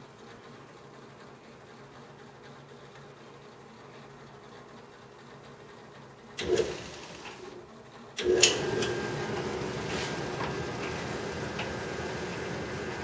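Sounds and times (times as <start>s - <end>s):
clothes dryer running: 6.3s - 13.0s.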